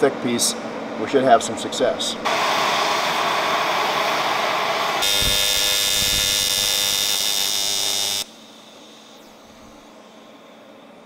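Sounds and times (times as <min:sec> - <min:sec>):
gas torch flame hissing: 0:02.2 - 0:08.3
welding arc buzzing: 0:02.3 - 0:08.4.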